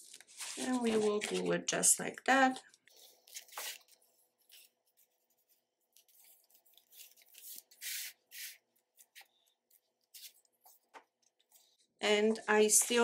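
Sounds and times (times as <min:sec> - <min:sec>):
hands rubbing paper: 0:02.9 - 0:11.7.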